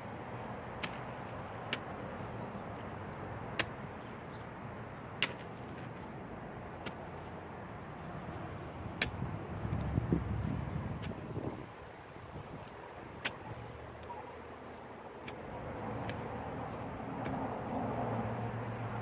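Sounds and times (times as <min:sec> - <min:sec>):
trowel clicking on dirt clods: 0:00.8 - 0:01.1, 0:15.2 - 0:16.3, 0:17.1 - 0:17.4
steady low rumble: 0:06.1 - 0:19.0.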